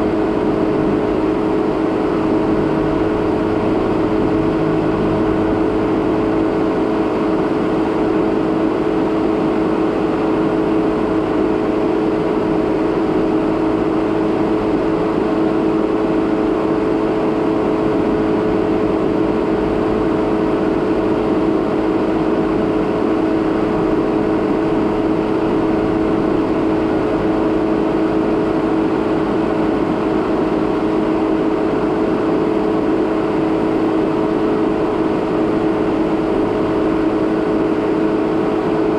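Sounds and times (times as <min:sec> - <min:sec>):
car engine drone: 0:00.0 - 0:38.9
rough road noise: 0:00.4 - 0:08.0.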